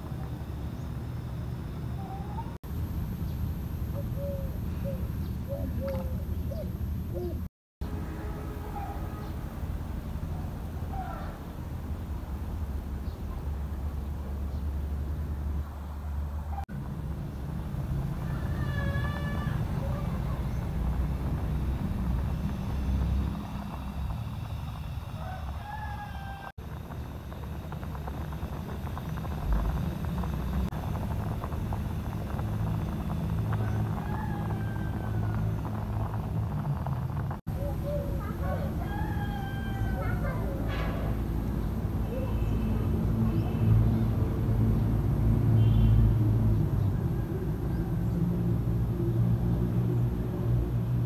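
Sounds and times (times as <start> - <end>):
gas stove low rumble: 9.0 - 51.0
water bubbling at a rolling boil: 16.7 - 51.0.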